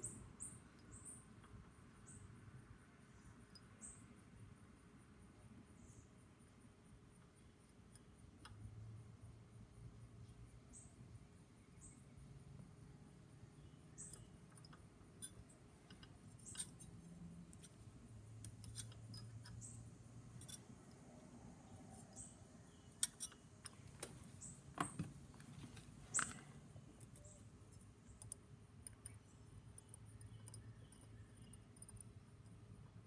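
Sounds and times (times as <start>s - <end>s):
low steady hum: 0.0s - 33.0s
small clicks and taps on metal: 7.2s - 8.7s, 13.6s - 21.1s, 22.0s - 33.0s.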